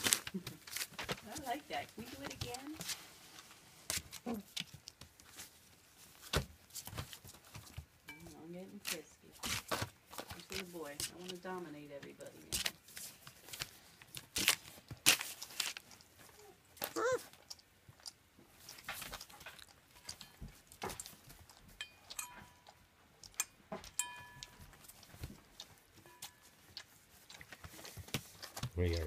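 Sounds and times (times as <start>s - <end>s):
puppies crunching dry kibble: 0.0s - 7.9s, 8.6s - 29.0s
puppy whine: 16.2s - 17.4s
metal bowl ringing: 21.8s - 22.6s, 23.9s - 24.6s.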